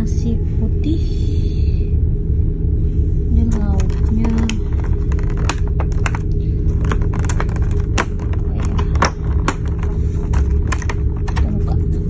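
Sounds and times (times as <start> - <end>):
low engine drone: 0.0 - 12.0
plastic packaging clicks and rattles: 3.8 - 11.8.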